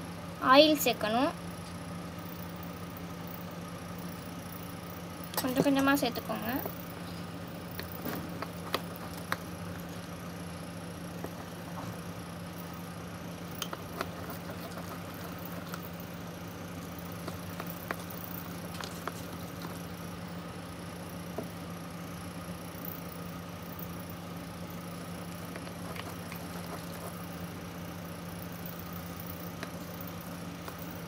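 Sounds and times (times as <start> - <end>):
steady low hum: 0.0 - 31.0
hands kneading slime: 13.5 - 20.1.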